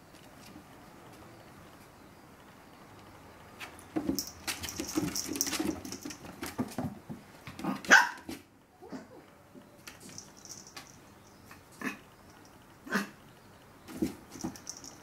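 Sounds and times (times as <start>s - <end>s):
puppy barking and yipping: 7.9s - 9.1s.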